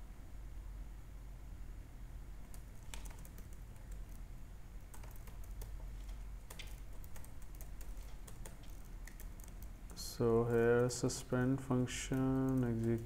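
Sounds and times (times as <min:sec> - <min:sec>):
steady low hum: 0:00.0 - 0:13.0
keyboard key clicks: 0:02.5 - 0:04.2, 0:06.4 - 0:09.7.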